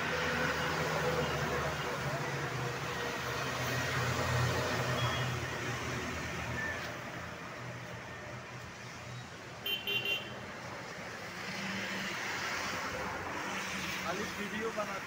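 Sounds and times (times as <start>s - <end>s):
street traffic noise: 0.0s - 15.0s
vehicle horn toots: 9.6s - 10.3s.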